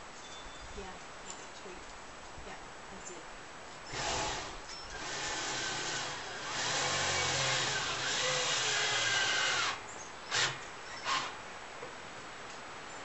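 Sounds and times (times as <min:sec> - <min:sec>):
power drill driving a screw into wood: 0:03.9 - 0:11.4.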